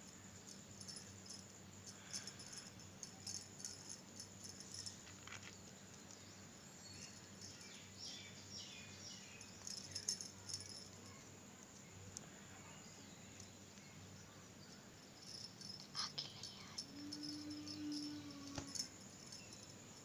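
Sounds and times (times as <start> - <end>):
low steady hum: 0.0 - 20.0
beads clicking and jingling: 0.5 - 5.5, 9.4 - 11.1, 15.2 - 20.0.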